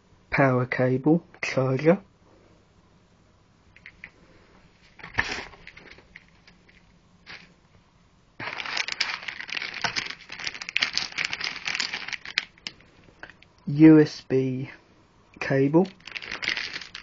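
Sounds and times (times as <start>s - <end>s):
cardboard rustling: 4.8s - 7.5s, 8.4s - 12.7s, 16.0s - 17.0s
plastic bag crinkling: 4.8s - 7.6s, 8.4s - 13.4s, 15.8s - 17.0s.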